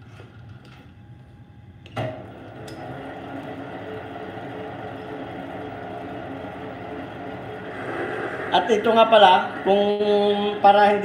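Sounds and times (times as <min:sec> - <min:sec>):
lathe motor humming: 0:02.2 - 0:11.0.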